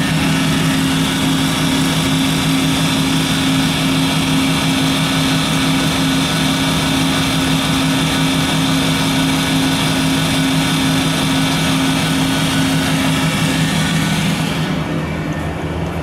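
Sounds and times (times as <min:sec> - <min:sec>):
grinder machine hum and whine: 0:00.0 - 0:16.0.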